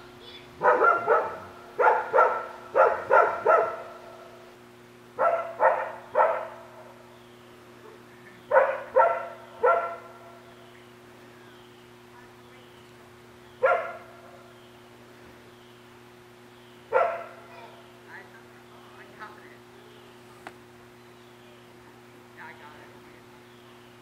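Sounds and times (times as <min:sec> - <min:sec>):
dog barking: 0:00.6 - 0:04.0, 0:05.2 - 0:06.8, 0:07.8 - 0:10.4, 0:13.6 - 0:14.4, 0:16.9 - 0:17.5.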